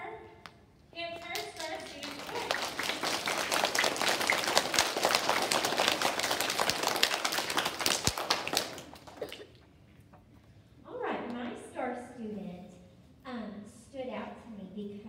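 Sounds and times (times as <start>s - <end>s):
children clapping: 1.2s - 9.6s.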